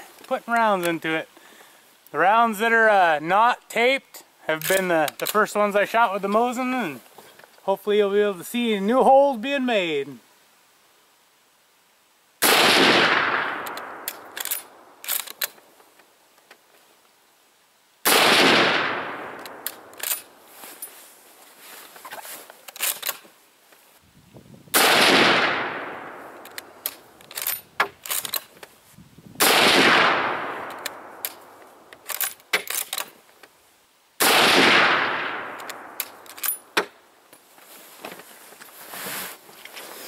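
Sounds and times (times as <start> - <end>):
rifle shots echoing: 12.4 - 15.0, 18.0 - 20.3, 24.7 - 26.8, 29.4 - 31.9, 34.2 - 36.8
rifle bolt clicks: 13.1 - 15.6, 18.3 - 20.3, 24.9 - 28.6, 29.4 - 33.1, 34.2 - 36.9.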